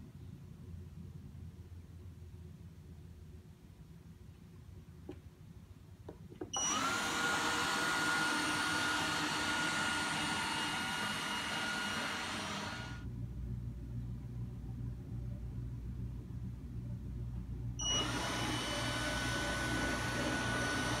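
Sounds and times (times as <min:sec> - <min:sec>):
vacuum suction fan whine: 0:06.5 - 0:21.0
low hum: 0:10.7 - 0:21.0.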